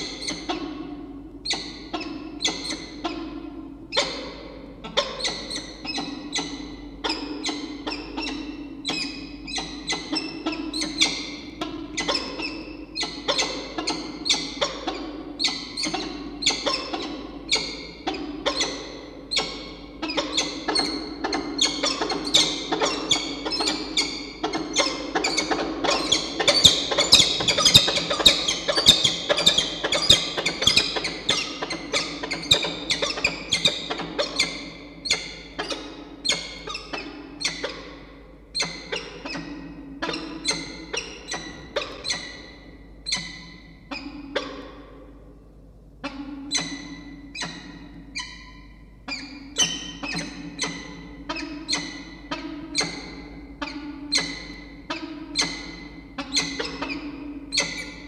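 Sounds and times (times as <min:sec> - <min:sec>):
falcons calling: 0:24.5 - 0:34.3.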